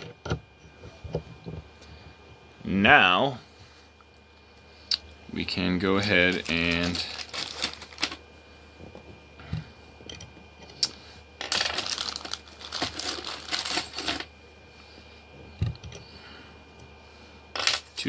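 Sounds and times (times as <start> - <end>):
metal wrenches clinking in a bag: 6.0 - 8.2, 11.4 - 14.3.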